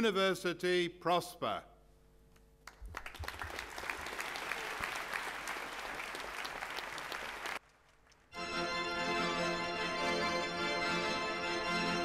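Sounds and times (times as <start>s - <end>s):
audience applauding: 2.7s - 8.4s.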